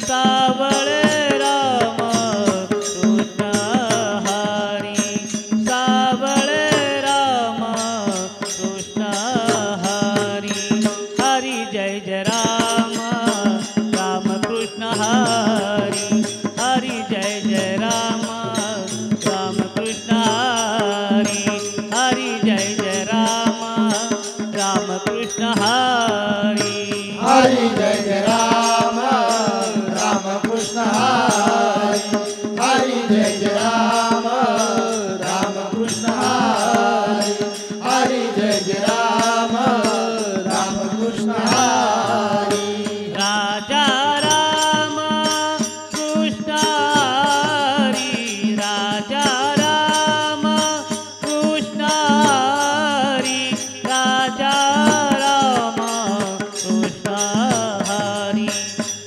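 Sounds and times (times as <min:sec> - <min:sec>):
men chanting devotional song: 0:00.0 - 0:59.0
drum beat: 0:26.4 - 0:43.1.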